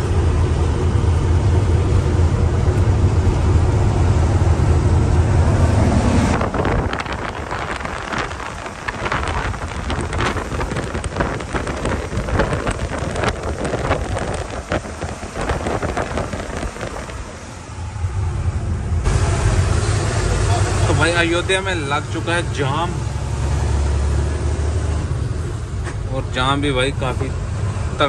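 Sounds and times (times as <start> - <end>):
wind buffeting microphone: 0.0 - 19.5
low drone inside truck cab: 0.0 - 28.0
road and engine noise: 0.0 - 28.0.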